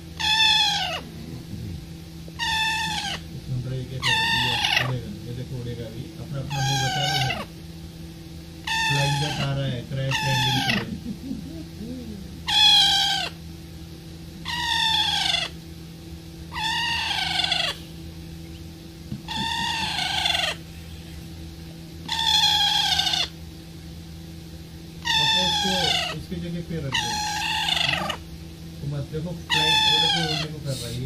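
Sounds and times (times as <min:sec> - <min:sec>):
parakeet calling: 0:00.0 - 0:01.2, 0:02.3 - 0:05.1, 0:06.3 - 0:07.6, 0:08.6 - 0:11.8, 0:12.4 - 0:13.4, 0:14.4 - 0:15.6, 0:16.4 - 0:21.2, 0:22.0 - 0:23.5, 0:24.9 - 0:28.4, 0:29.3 - 0:31.0
low steady hum: 0:00.0 - 0:31.0.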